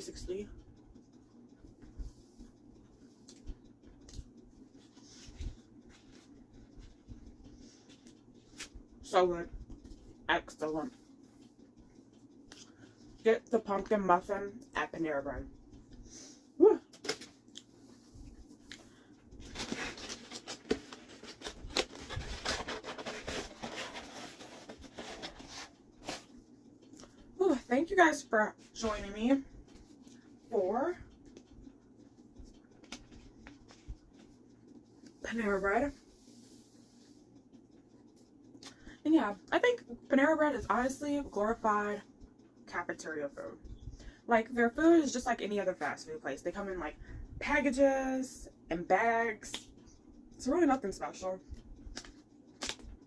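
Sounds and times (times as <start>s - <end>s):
cardboard box rustling and scraping: 19.5s - 26.3s.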